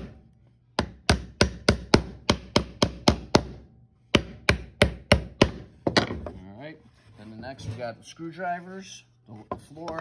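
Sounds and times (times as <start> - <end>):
hammer striking nails into wood: 0.0 - 0.2, 0.8 - 6.2.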